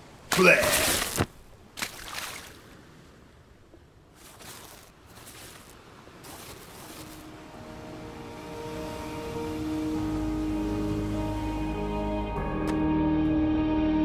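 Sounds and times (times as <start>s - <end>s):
surf lapping on a shore: 0.0s - 11.9s
gentle music: 6.3s - 14.0s.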